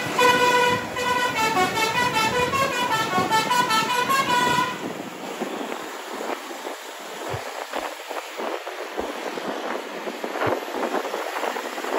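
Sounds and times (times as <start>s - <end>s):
musical air horn playing a tune: 0.0s - 4.9s
road noise: 0.0s - 11.9s.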